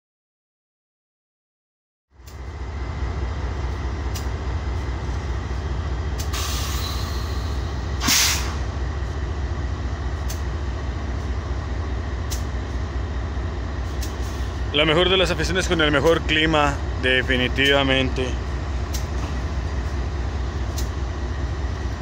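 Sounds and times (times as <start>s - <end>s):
diesel locomotives rumbling: 2.1s - 22.0s
air hissing: 6.2s - 8.7s.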